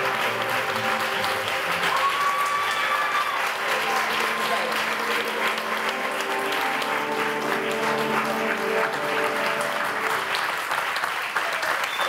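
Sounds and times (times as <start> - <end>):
audience applauding: 0.0 - 12.0
music of held notes: 3.8 - 10.7.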